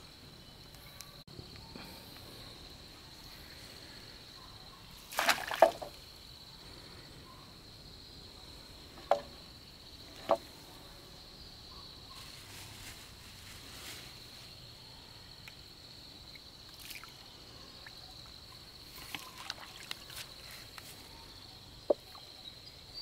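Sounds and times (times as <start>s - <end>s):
water splashing: 5.0s - 6.0s, 19.0s - 20.3s.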